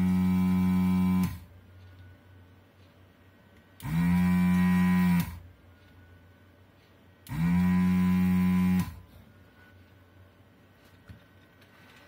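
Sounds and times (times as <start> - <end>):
desoldering pump buzzing hum: 0.0 - 2.4, 3.5 - 5.7, 7.2 - 9.4.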